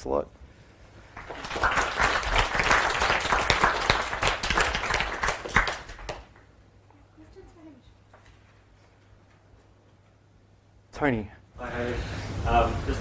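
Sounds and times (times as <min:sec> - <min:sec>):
audience applauding: 0:01.1 - 0:06.5.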